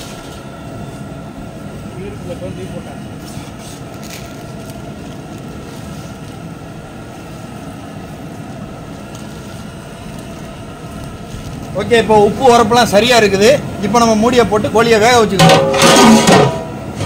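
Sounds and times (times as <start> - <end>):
cooking stove burning rumble: 0.0 - 17.0.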